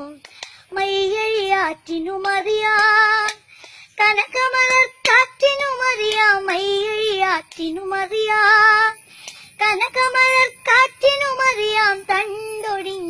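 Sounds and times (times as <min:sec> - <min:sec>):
girl singing unaccompanied: 0:00.0 - 0:13.0.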